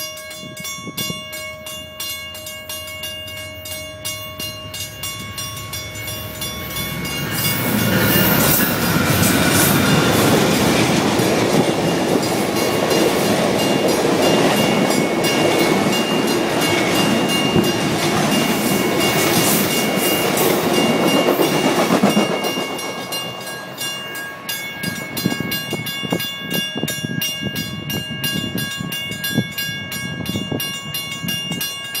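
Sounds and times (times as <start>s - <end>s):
train wheels clattering on rails: 4.8s - 27.0s.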